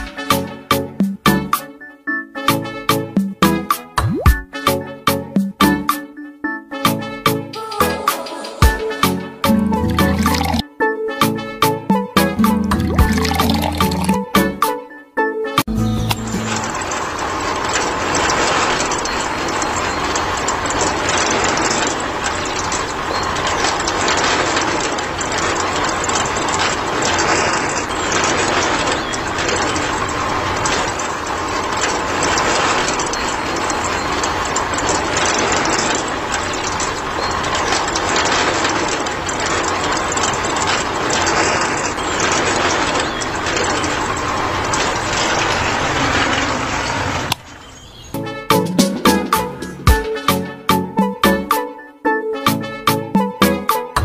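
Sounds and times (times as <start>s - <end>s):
model concrete mixer rattling: 12.4s - 14.2s, 16.3s - 47.8s.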